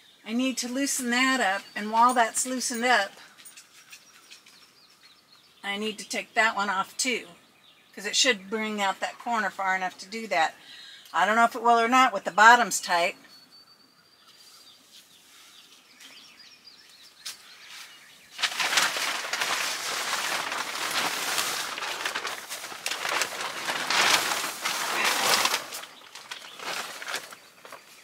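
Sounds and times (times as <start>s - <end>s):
tarp crinkling and flapping: 18.3s - 28.0s.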